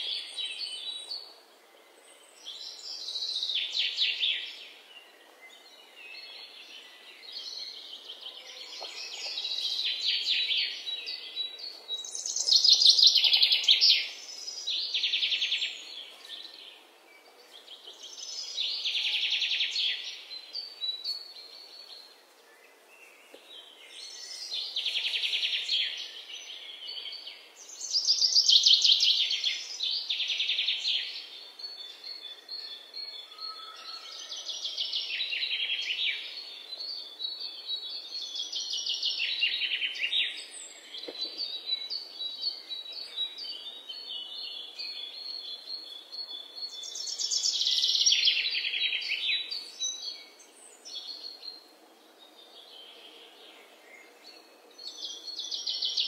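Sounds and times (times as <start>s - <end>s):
faint steady hiss: 0.0s - 33.3s.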